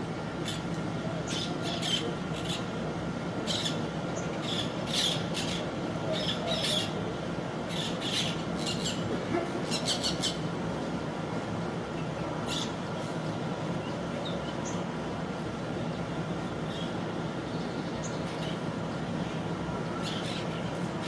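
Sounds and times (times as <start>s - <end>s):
steady background noise: 0.0s - 21.0s
birds giving high calls: 0.4s - 2.8s, 3.4s - 7.0s, 7.6s - 10.5s, 12.4s - 12.9s, 19.3s - 21.0s.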